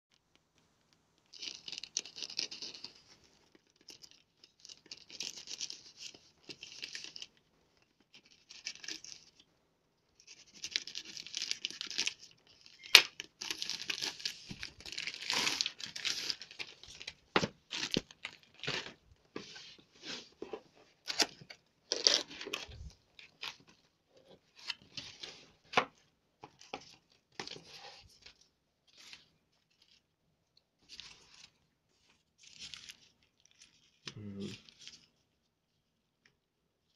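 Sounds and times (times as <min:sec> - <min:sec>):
plastic tearing and crinkling: 0:01.3 - 0:07.4, 0:10.2 - 0:20.4, 0:21.0 - 0:30.0.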